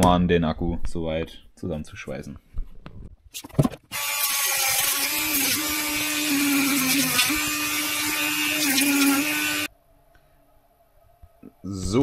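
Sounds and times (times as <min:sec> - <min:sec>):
rotary tool grinding metal: 0:03.9 - 0:09.7.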